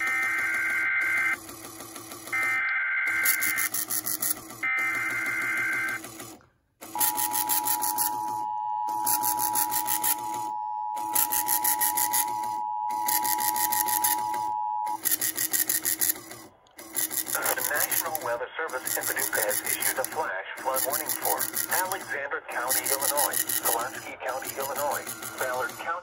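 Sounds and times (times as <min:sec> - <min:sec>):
data tones from small speaker: 0:07.0 - 0:15.0
two-tone alert signal: 0:07.0 - 0:15.0.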